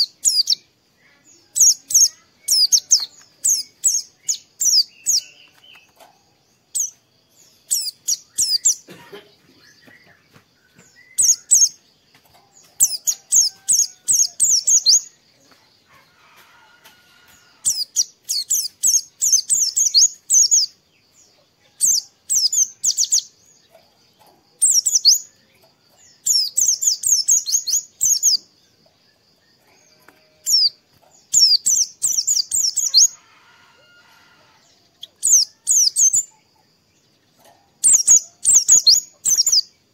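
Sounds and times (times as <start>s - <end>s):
bird twittering song: 0.0s - 39.9s.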